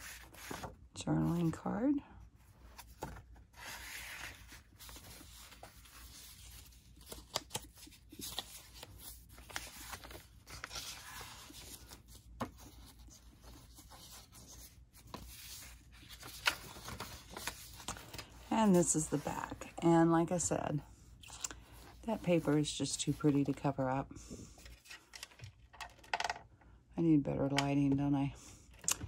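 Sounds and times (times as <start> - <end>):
paper rustling: 0.0 - 1.5, 2.6 - 19.8, 21.2 - 23.7.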